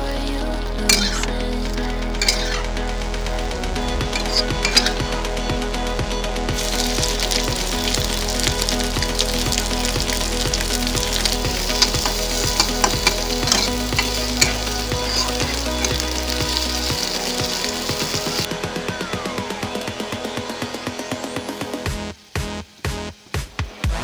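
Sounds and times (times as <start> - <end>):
onions sizzling in hot oil: 0.8 - 1.3, 2.2 - 2.6, 4.2 - 5.0, 6.6 - 18.5
spatula scraping pan: 0.9 - 1.3, 2.2 - 2.7.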